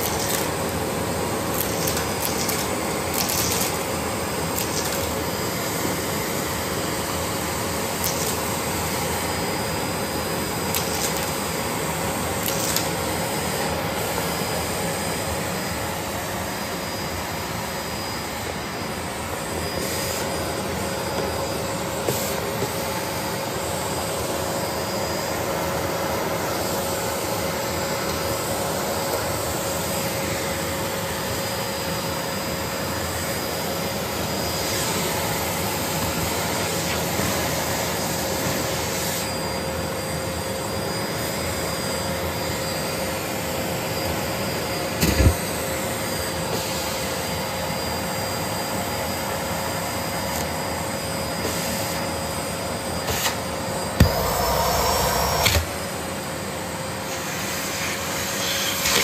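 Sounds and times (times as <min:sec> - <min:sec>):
vacuum cleaner running: 0:00.0 - 0:59.0
small clicks: 0:01.6 - 0:03.8, 0:04.6 - 0:05.1, 0:12.4 - 0:12.9.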